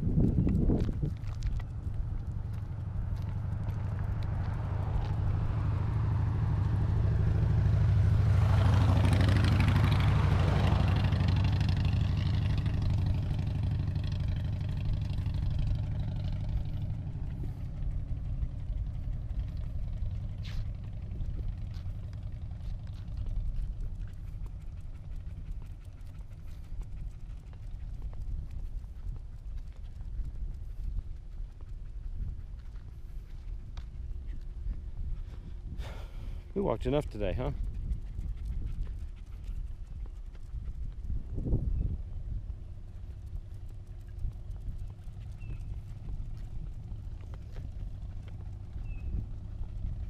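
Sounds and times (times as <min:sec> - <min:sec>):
car passing: 0:00.0 - 0:28.4, 0:35.2 - 0:39.6
low rumble: 0:00.0 - 0:50.0.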